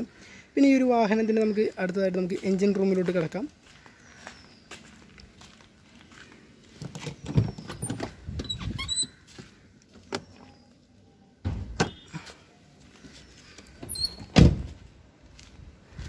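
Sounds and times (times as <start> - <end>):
footsteps on gravel: 1.9 - 6.8, 9.2 - 10.0, 15.2 - 16.0
loud thump: 11.4 - 12.0.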